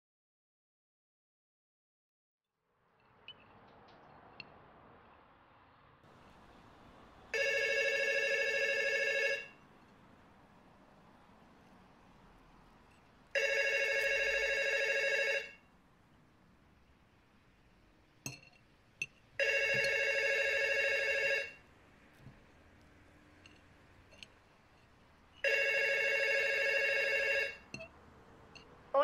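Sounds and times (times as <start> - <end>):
telephone ringing: 7.3 - 9.7, 13.3 - 15.7, 19.4 - 22.4, 25.4 - 27.9.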